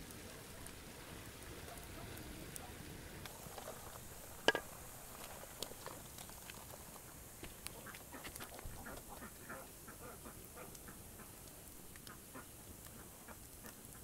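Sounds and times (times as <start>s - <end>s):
wooden spatula stirring food in pot: 3.2s - 11.4s.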